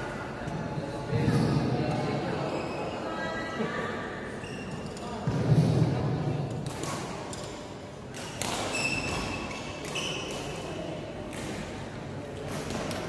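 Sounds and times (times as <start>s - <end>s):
indoor sports hall ambience: 0.0s - 13.0s
short high shoe squeaks: 4.4s - 4.9s, 8.7s - 10.3s.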